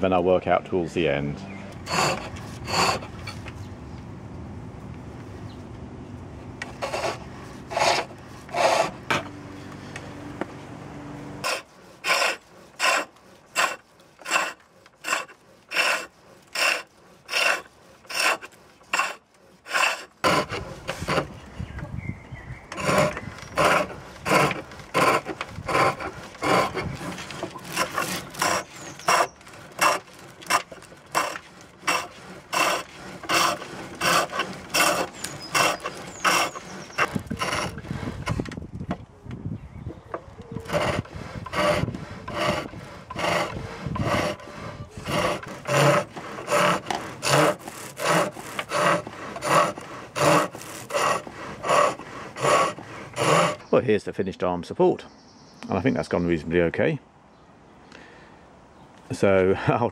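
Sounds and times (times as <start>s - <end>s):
chisel shaving wood on lathe: 1.8s - 3.2s, 6.6s - 9.2s, 11.4s - 21.4s, 22.7s - 38.5s, 40.6s - 53.7s.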